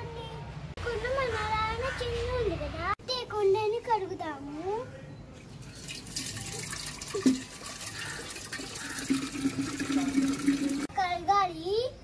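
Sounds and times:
tap water running into clay pot: 0:05.7 - 0:10.9.

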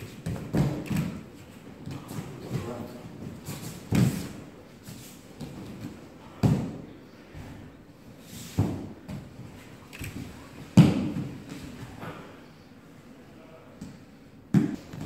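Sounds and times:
bodies thudding on mats: 0:00.0 - 0:04.5, 0:08.4 - 0:12.0.

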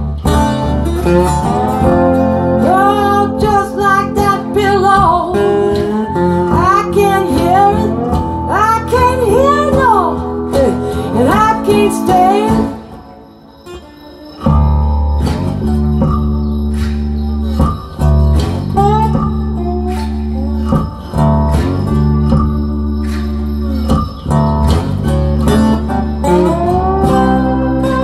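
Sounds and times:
slow acoustic guitar music: 0:00.0 - 0:28.0.

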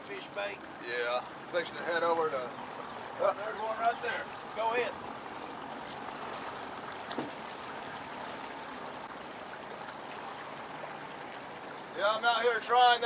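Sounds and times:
river water rushing: 0:00.0 - 0:13.0
faint knock: 0:07.1 - 0:07.4.

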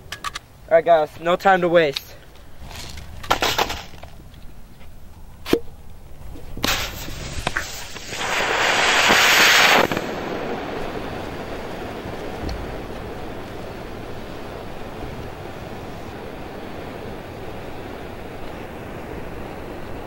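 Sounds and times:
smoke grenade crack: 0:06.6 - 0:11.1
smoke grenade hissing: 0:06.6 - 0:13.2.

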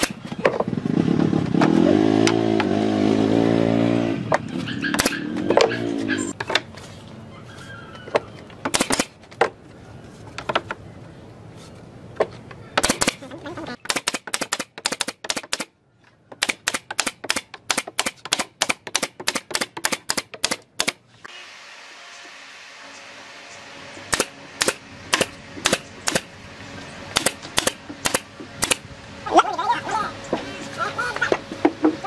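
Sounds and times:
nail gun firing into wood: 0:00.0 - 0:00.2, 0:04.9 - 0:05.7, 0:08.6 - 0:09.2, 0:12.8 - 0:13.2, 0:13.8 - 0:15.7, 0:16.4 - 0:21.0, 0:24.1 - 0:26.3, 0:27.2 - 0:28.8.

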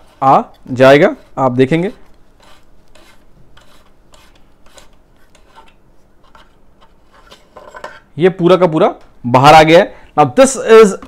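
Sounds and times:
plastic cap rubbing and scraping: 0:00.0 - 0:07.8.

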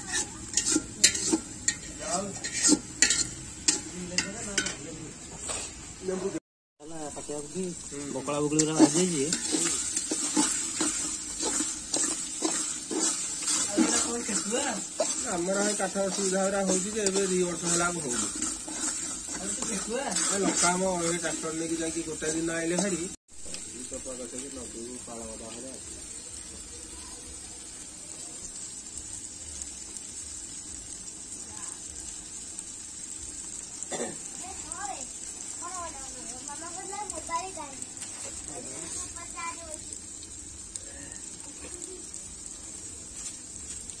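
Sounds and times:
metal ladle scraping pot: 0:00.0 - 0:04.8, 0:08.6 - 0:23.1
oil sizzling: 0:00.0 - 0:44.0.

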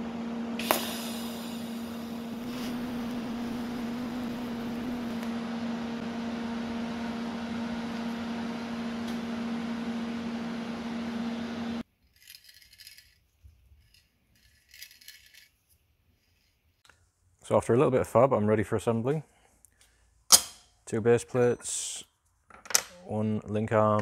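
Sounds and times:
welder humming with hiss: 0:00.0 - 0:11.8.

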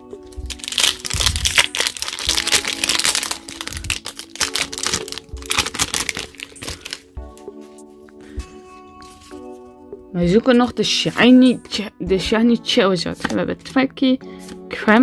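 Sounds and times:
background music: 0:00.0 - 0:15.0
foil wrapper crinkling and tearing: 0:00.3 - 0:07.1.

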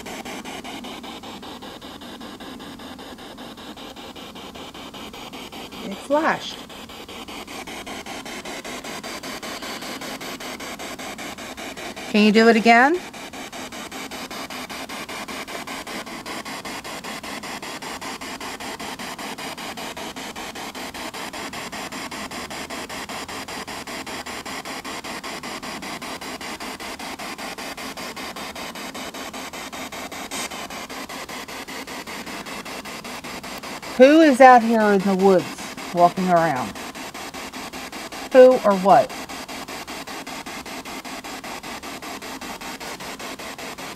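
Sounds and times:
pulsing radio static: 0:00.0 - 0:43.9.

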